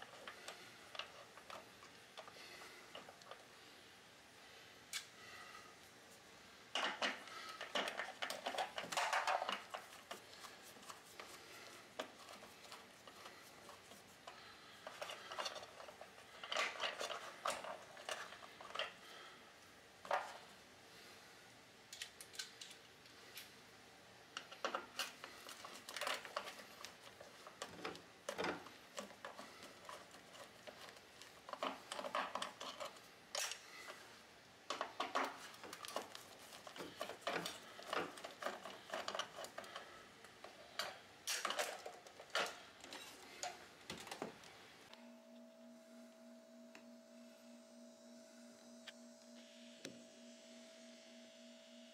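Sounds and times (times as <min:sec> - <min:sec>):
stiff wires being moved: 0:06.7 - 0:19.3, 0:24.4 - 0:44.6.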